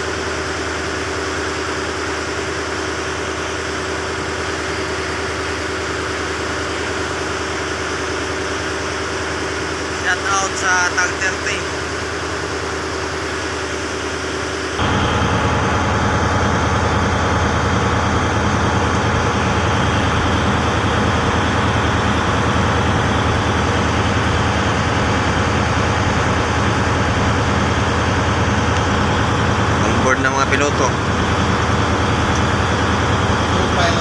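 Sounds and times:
boat engine running: 0:00.0 - 0:34.0.

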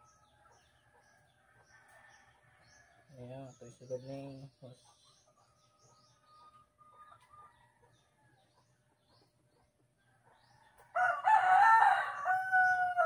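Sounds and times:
rooster crowing: 0:10.9 - 0:13.0.

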